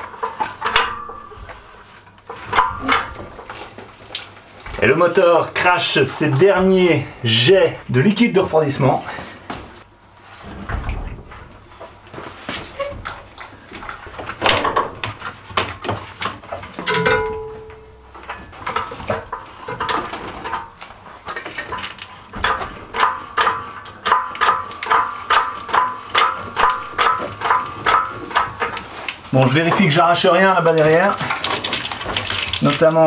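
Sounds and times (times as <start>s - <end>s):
metal and chain clicks and knocks: 0.0s - 4.8s, 16.2s - 28.9s.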